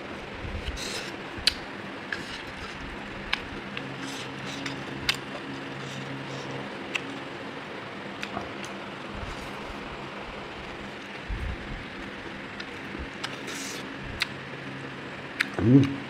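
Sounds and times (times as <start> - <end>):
steady background hum: 0.0 - 16.0
mouth smacks and clicks eating: 4.6 - 5.5, 6.9 - 7.1, 12.6 - 14.4, 15.4 - 16.0.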